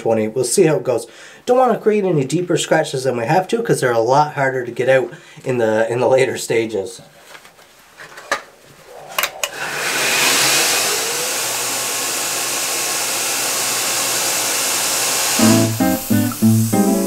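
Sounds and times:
belt grinder motor running: 0:09.7 - 0:15.5.

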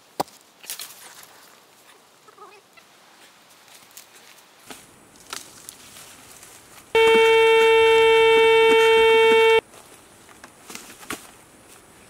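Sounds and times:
metal detector steady tone: 0:07.0 - 0:09.6.

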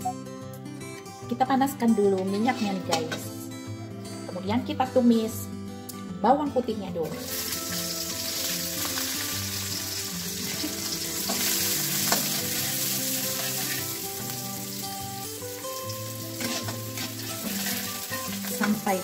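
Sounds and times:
garlic sizzling in hot oil: 0:07.2 - 0:19.0
spatula stirring in a wok: 0:10.9 - 0:13.9, 0:16.3 - 0:18.4.

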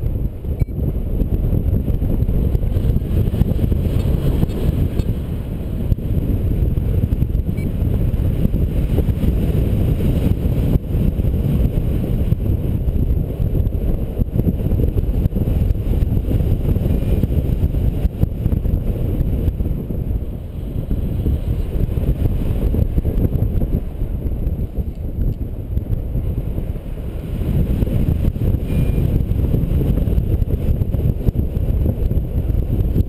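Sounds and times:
wind buffeting microphone: 0:00.0 - 0:33.0.

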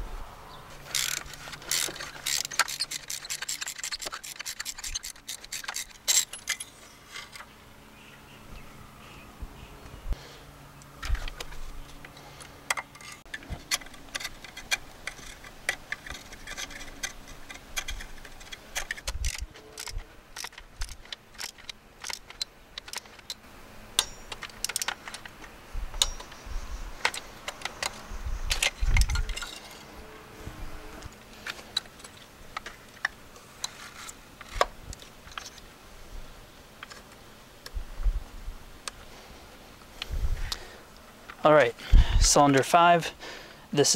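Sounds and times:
hand tools and metal clinking: 0:00.7 - 0:07.6, 0:11.0 - 0:30.2, 0:31.0 - 0:35.7.

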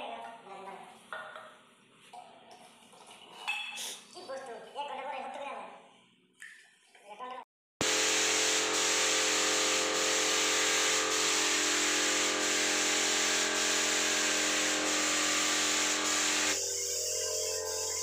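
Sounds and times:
spray gun hissing: 0:07.8 - 0:18.0
steady hum: 0:07.8 - 0:18.0.

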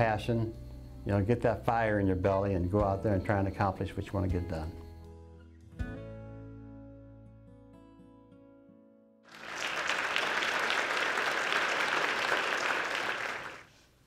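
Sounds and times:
soft guitar music: 0:00.0 - 0:09.2
audience applauding: 0:09.3 - 0:13.8.

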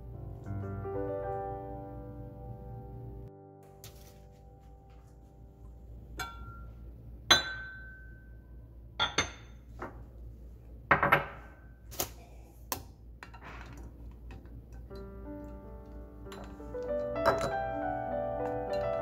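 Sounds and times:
spoon clinking against glass pot: 0:06.2 - 0:06.6, 0:17.2 - 0:17.6
glass lid clinking: 0:17.2 - 0:17.6.

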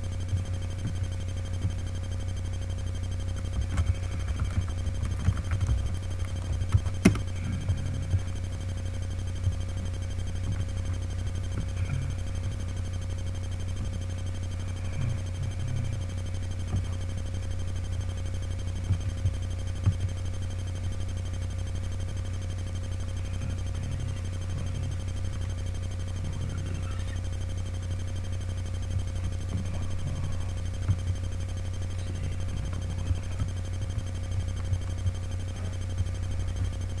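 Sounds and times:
steady low hum: 0:00.0 - 0:37.0
faint high steady tone: 0:23.0 - 0:27.4.

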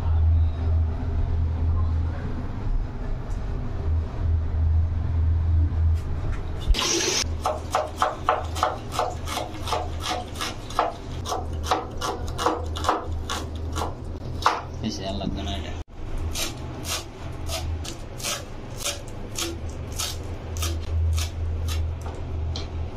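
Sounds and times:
low steady hum: 0:00.0 - 0:12.5
knife chopping on wooden board: 0:07.4 - 0:14.7.

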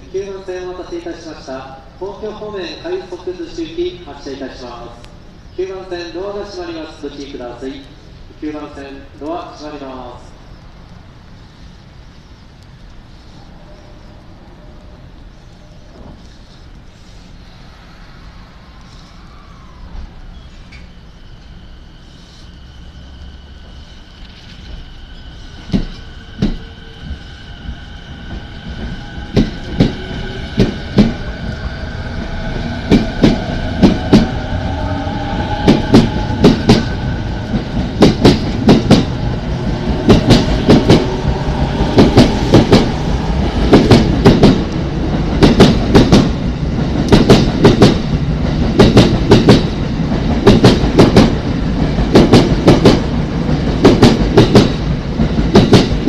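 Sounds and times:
train traction motor whine: 0:18.3 - 0:55.7
train wheels clacking on rail joints: 0:25.6 - 0:27.2, 0:35.6 - 0:39.1, 0:43.6 - 0:56.0.

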